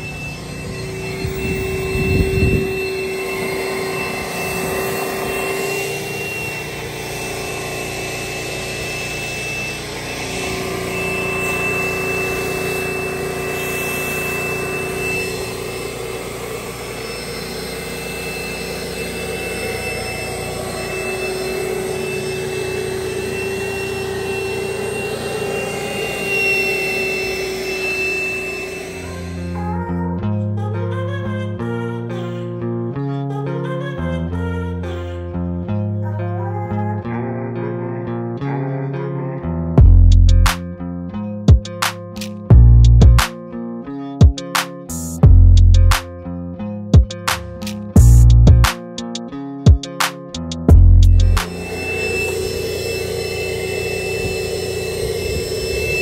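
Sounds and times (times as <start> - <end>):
shop vacuum running: 0.0 - 30.0, 47.2 - 48.8, 50.0 - 56.0.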